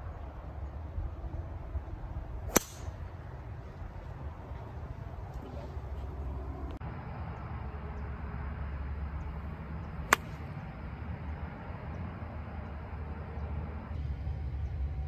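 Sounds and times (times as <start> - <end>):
steady low rumble: 0.0 - 15.0
golf club striking ball: 2.5 - 3.0, 10.1 - 10.4.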